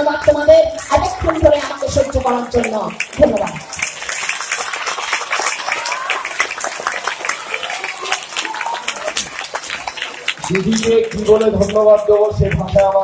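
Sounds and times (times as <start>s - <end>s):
audience clapping: 0.2s - 13.0s
faint voices: 5.5s - 13.0s.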